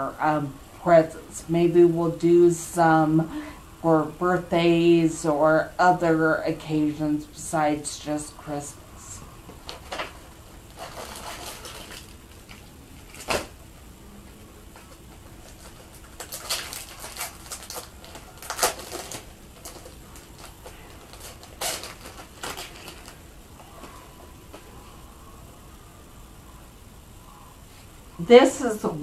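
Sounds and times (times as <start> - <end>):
plastic packaging rustling: 9.6 - 13.6, 14.7 - 24.7.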